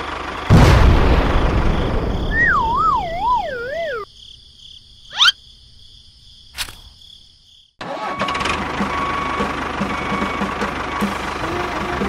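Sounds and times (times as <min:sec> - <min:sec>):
noisy rumble: 0:00.0 - 0:04.0
wobbling tone sliding down: 0:02.4 - 0:04.0
sharp click: 0:06.6 - 0:06.9.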